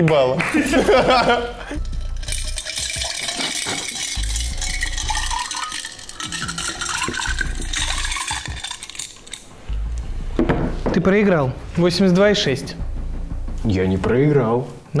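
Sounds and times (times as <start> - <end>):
liquid pouring into a glass: 1.8 - 9.4
ice cubes clinking against glass: 1.8 - 9.5.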